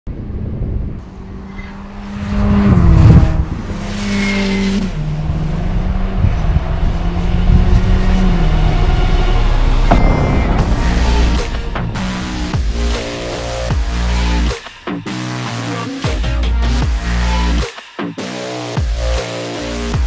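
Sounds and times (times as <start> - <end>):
sports car engine passing: 0.1 - 15.9.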